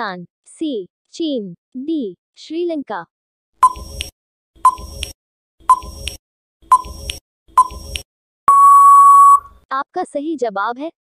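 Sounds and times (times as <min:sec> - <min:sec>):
short beeps: 0:07.6 - 0:07.8, 0:08.5 - 0:09.6
long steady beep: 0:08.5 - 0:09.6.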